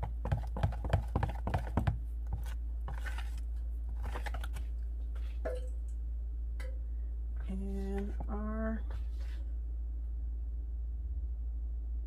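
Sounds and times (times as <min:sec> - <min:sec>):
low hum: 0:02.0 - 0:12.0
soft rustles: 0:08.0 - 0:09.6.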